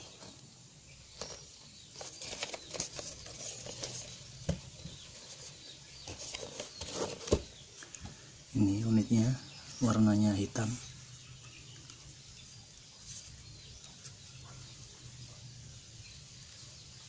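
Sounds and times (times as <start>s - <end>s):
cardboard box rustling and scraping: 1.2s - 7.6s.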